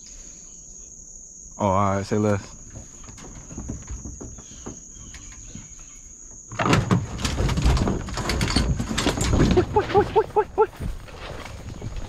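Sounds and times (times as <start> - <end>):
insects droning: 0.0 - 12.0
clattering and rustling: 2.7 - 5.6, 6.6 - 12.0.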